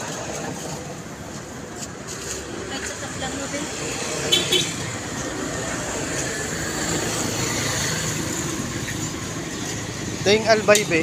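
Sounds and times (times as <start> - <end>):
vehicle engine and road noise: 0.0 - 11.0.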